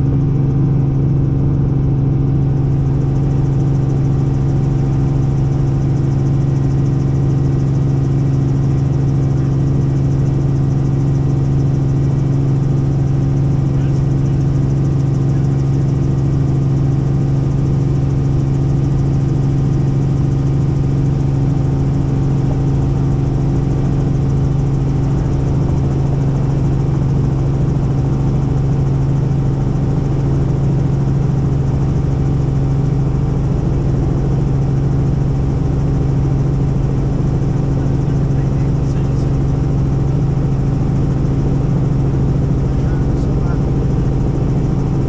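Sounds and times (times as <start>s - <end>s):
helicopter engine and rotor drone: 0.0s - 45.0s.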